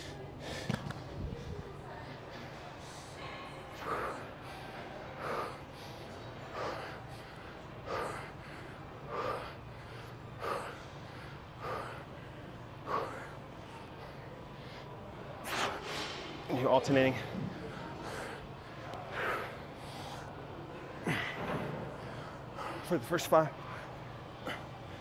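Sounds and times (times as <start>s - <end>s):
man's forceful breaths: 0.0s - 16.2s
steady low hum: 0.0s - 25.0s.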